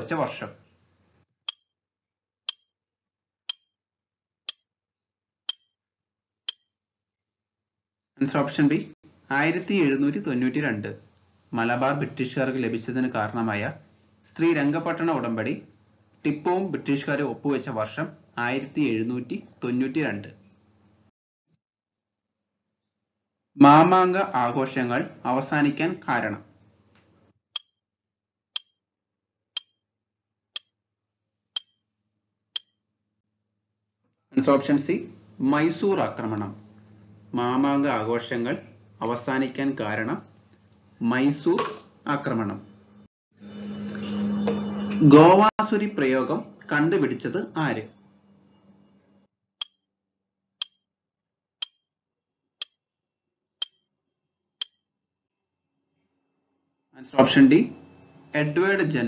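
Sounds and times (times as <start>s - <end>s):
clock-like ticks: 1.5s - 1.7s, 2.5s - 2.7s, 3.5s - 3.7s, 5.5s - 5.7s, 6.5s - 6.7s, 28.6s - 28.8s, 29.6s - 29.8s, 31.6s - 31.8s
sharp ticking clicks: 28.6s - 28.8s, 31.6s - 31.8s.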